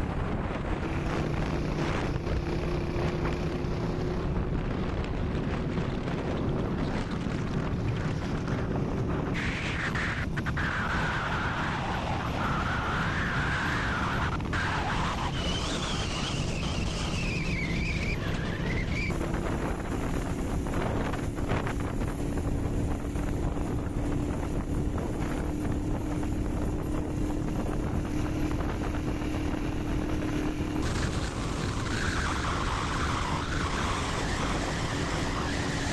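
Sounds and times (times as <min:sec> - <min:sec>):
wind on microphone: 0:00.0 - 0:35.9
wavering whine: 0:07.0 - 0:35.9
motorcycle engine running: 0:14.4 - 0:35.9.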